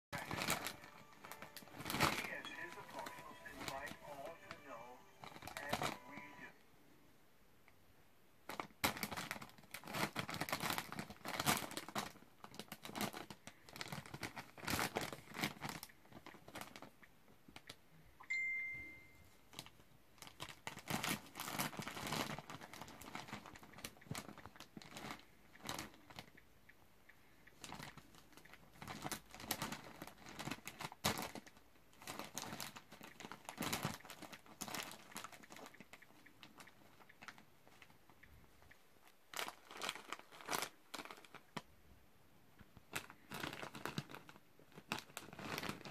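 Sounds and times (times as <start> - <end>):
plastic snack bag crinkling: 0.2 - 6.5, 8.4 - 17.0, 19.5 - 26.4, 27.6 - 38.0, 39.0 - 41.7, 42.8 - 45.9
steady high tone: 0.5 - 6.6, 18.2 - 19.4.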